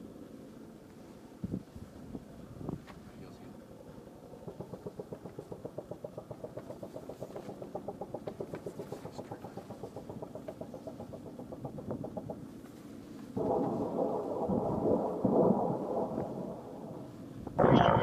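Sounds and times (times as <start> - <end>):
helicopter rotors chopping: 3.3 - 16.9.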